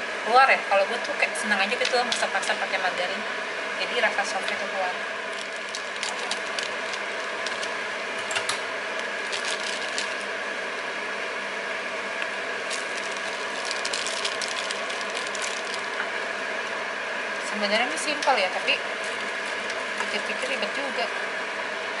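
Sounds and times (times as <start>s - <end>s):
mechanical hum: 0.0s - 22.0s
plastic bag crinkling: 5.3s - 10.3s, 12.6s - 16.0s, 19.0s - 20.8s.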